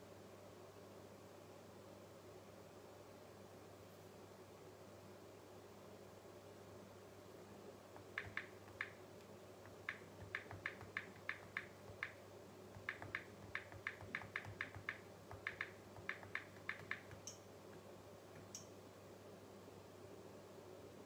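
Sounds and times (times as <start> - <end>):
fingers tapping touchscreen: 8.0 - 9.0, 9.6 - 18.7.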